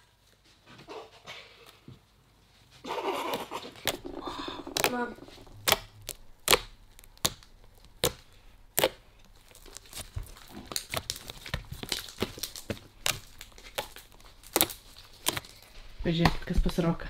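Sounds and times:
fingers squeezing sticky slime: 0:03.3 - 0:15.7.

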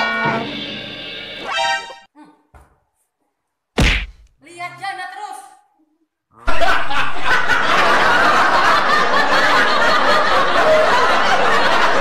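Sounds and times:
crowd laughing: 0:06.4 - 0:12.0.

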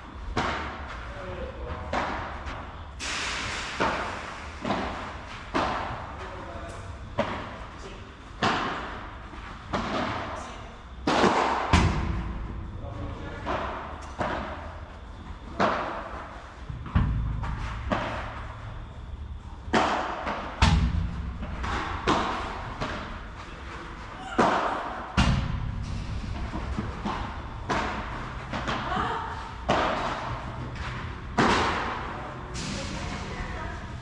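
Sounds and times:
padel rackets hitting ball: 0:00.2 - 0:00.9, 0:03.8 - 0:06.2, 0:11.0 - 0:12.4, 0:19.6 - 0:23.4, 0:24.2 - 0:32.2
ball bouncing on court: 0:19.7 - 0:23.2, 0:24.3 - 0:32.1.

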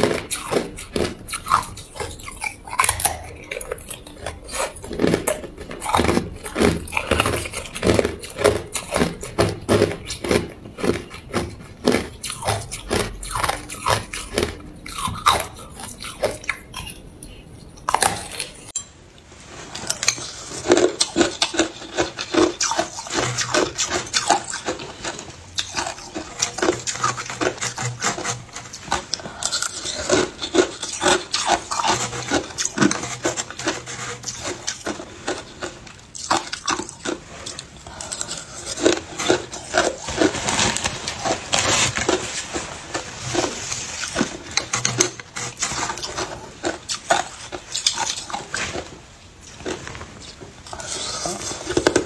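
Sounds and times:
teeth crunching ice: 0:00.0 - 0:18.8, 0:19.8 - 0:50.0
shaved ice crunching and scraping: 0:36.5 - 0:49.0.

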